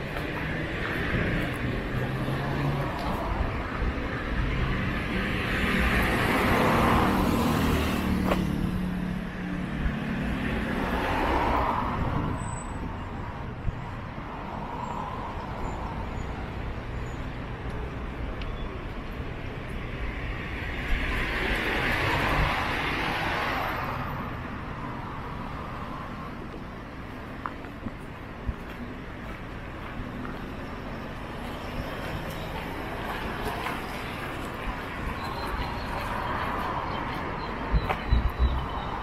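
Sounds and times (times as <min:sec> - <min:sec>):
cars driving past: 0:00.0 - 0:28.2, 0:28.8 - 0:39.0.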